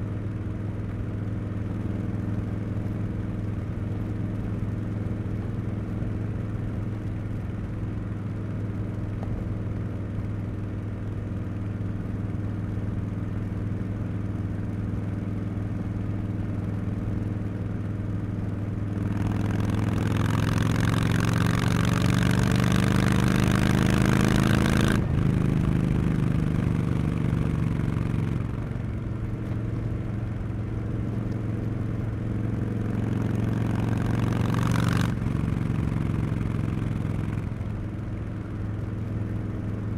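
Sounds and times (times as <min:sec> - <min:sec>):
motorcycle engine revving: 0:18.9 - 0:28.8, 0:32.1 - 0:37.8.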